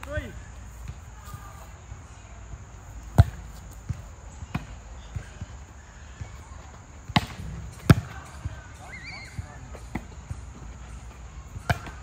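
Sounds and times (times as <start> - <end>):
volleyball thuds: 3.0 - 8.6, 11.6 - 12.0.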